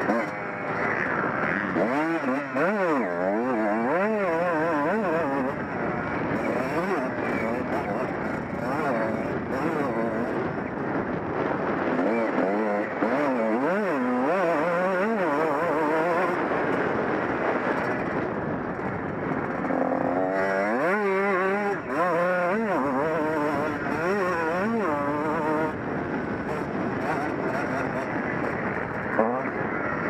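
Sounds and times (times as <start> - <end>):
motocross engine revving: 0.0 - 18.2, 19.3 - 30.0.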